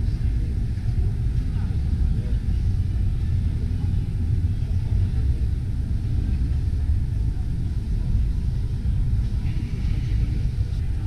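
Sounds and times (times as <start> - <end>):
exhibition hall rumble: 0.0 - 11.0.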